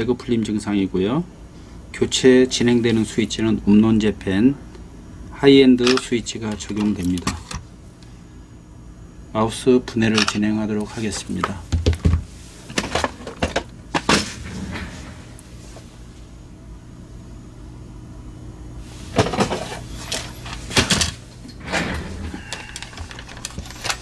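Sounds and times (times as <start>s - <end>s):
small parts clicking and knocking: 22.4s - 24.0s.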